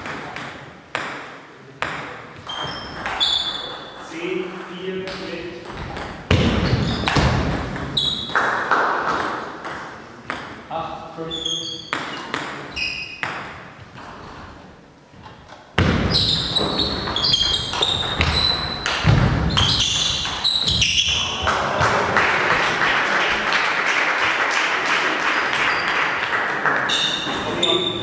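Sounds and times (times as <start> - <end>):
table tennis ball pinging: 0.0 - 10.6, 11.4 - 14.4, 15.8 - 21.2.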